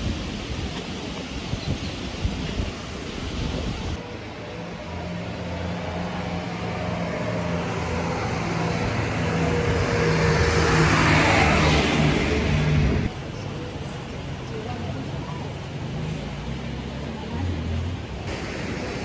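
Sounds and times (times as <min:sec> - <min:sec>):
vehicle engine passing by: 0:03.9 - 0:13.1, 0:14.3 - 0:19.0.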